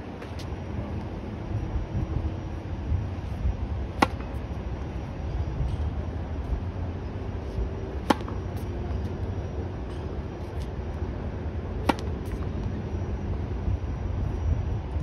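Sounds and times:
steady low rumble: 0.0 - 15.0
tennis racket hitting ball: 4.0 - 4.4, 8.0 - 8.4, 11.8 - 12.4.

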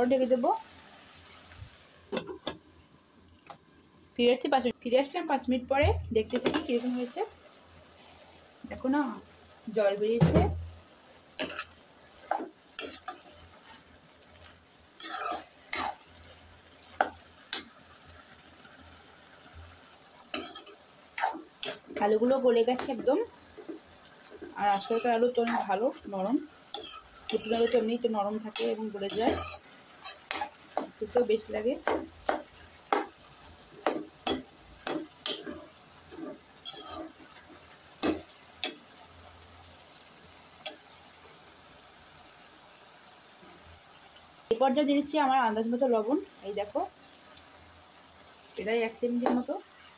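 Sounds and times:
spoon scraping metal pan: 11.4 - 13.8, 15.0 - 16.0, 20.3 - 22.0, 22.7 - 25.8, 26.7 - 33.1, 33.8 - 38.8.

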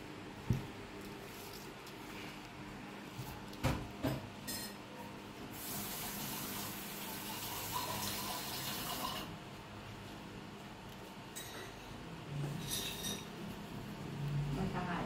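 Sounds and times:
water running from tap: 5.5 - 9.4.

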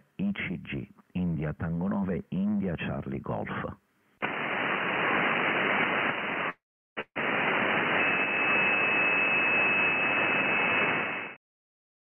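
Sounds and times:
radio band noise hiss: 4.2 - 11.4.

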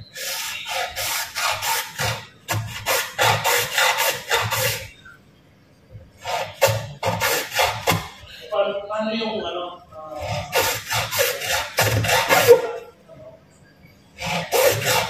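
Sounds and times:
hand tool rasping: 0.1 - 5.0, 6.2 - 8.2, 10.2 - 12.8, 14.2 - 15.0.

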